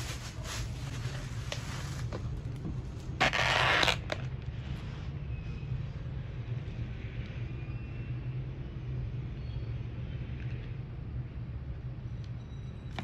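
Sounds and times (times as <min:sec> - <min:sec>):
loud plastic crinkle: 0:00.0 - 0:02.4, 0:03.1 - 0:04.3
plastic bag rustling: 0:00.0 - 0:04.3
steady low hum: 0:00.0 - 0:13.0.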